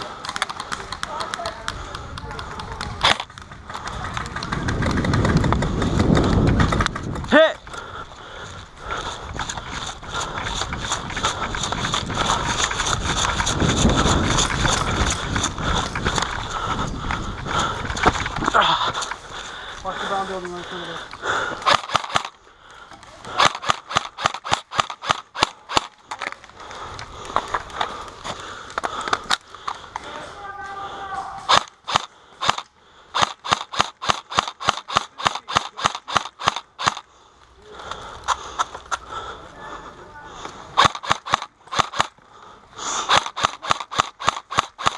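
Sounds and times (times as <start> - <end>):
gear and rifle rattling: 0.0 - 37.1, 40.4 - 44.9
running footsteps on dirt path: 0.0 - 44.9
wind rumble on microphone: 1.8 - 7.3, 7.9 - 19.0
airsoft rifle shots: 21.6 - 22.4, 23.3 - 26.0, 31.4 - 37.0, 40.8 - 42.2, 43.0 - 44.9.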